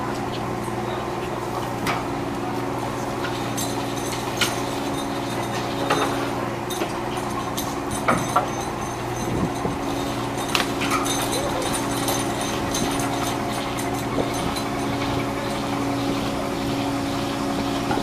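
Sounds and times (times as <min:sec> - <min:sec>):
boat engine humming: 0:00.0 - 0:18.0
metal gear knocking and clanking: 0:03.2 - 0:15.8.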